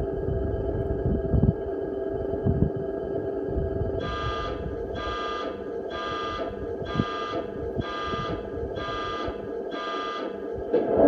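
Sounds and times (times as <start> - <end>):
low engine drone: 0.0 - 11.0
pulsing buzzing warning tone: 0.0 - 11.0.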